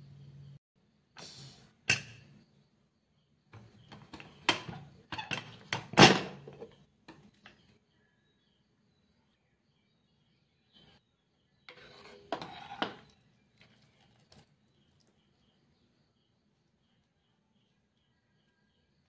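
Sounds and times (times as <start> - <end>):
pressure cooker metal clanks: 3.9 - 6.8.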